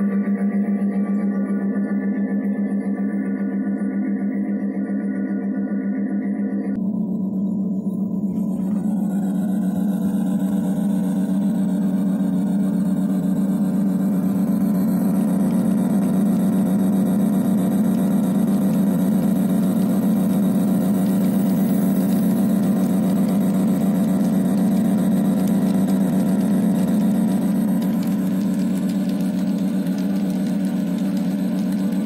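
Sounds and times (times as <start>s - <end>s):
diesel locomotive engine drone: 0.0s - 32.0s.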